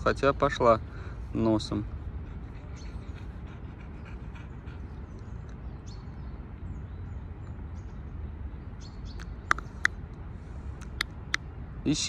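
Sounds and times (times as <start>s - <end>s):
low outdoor rumble: 0.0s - 12.0s
bird chirps: 2.6s - 10.0s.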